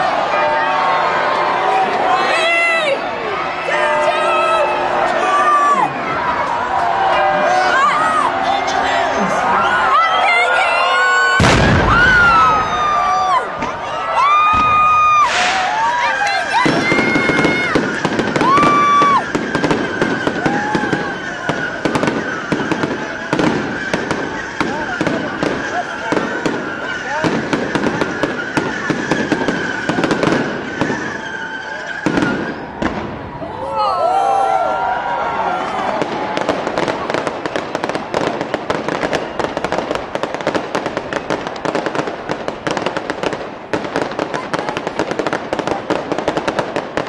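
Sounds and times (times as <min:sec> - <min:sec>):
fireworks bangs and crackles: 0:08.8 - 0:33.6, 0:35.6 - 0:47.0
firework whistling: 0:14.2 - 0:33.4, 0:36.3 - 0:43.1.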